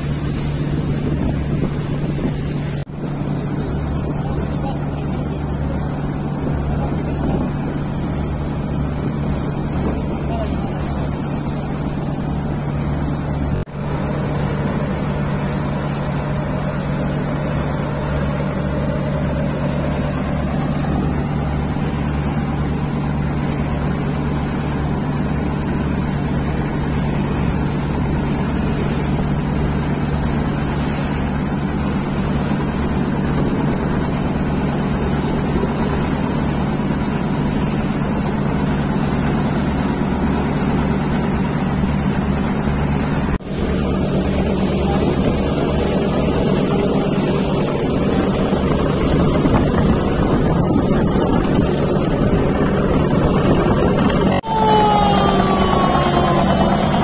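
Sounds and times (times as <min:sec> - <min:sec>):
wind noise: 0:00.0 - 0:14.7, 0:44.9 - 0:57.0
boat engine droning: 0:00.0 - 0:57.0
water rushing: 0:00.0 - 0:57.0.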